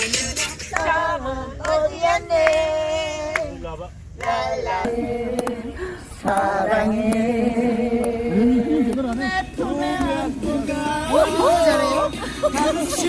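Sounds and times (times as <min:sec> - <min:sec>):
music with singing voice: 0:00.0 - 0:01.9, 0:04.8 - 0:13.0.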